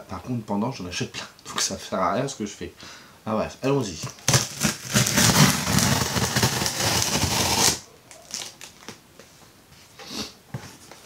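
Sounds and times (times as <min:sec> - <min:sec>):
packaging crinkling and tearing: 0:04.0 - 0:09.0.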